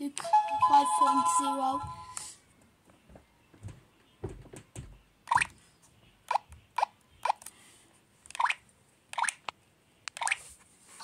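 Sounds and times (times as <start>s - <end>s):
toy camera electronic bloops: 8.3s - 9.4s.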